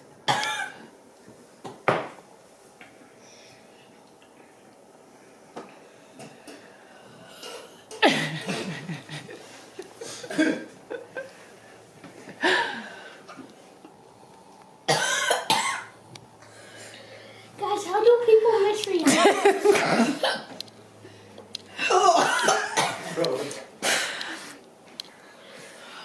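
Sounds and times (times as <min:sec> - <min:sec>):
children coughing: 0:00.3 - 0:00.9, 0:07.4 - 0:09.0, 0:10.0 - 0:10.8, 0:14.9 - 0:16.0, 0:19.0 - 0:20.6, 0:21.8 - 0:24.2.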